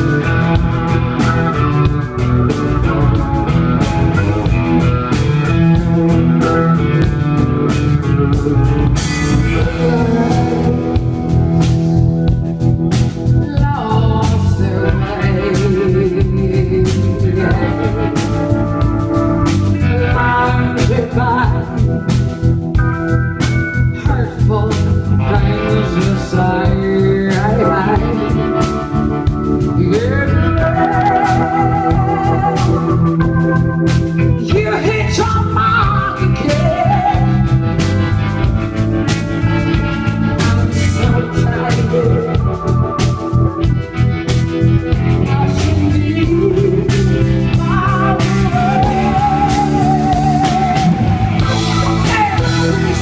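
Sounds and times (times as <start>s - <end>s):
electric guitar chords: 0.0s - 53.0s
steady drum beat: 0.0s - 53.0s
woman singing with vibrato: 8.4s - 11.3s, 13.4s - 18.4s, 19.8s - 21.8s, 24.0s - 28.6s, 29.8s - 33.1s, 34.4s - 37.6s, 40.4s - 43.8s, 45.1s - 53.0s.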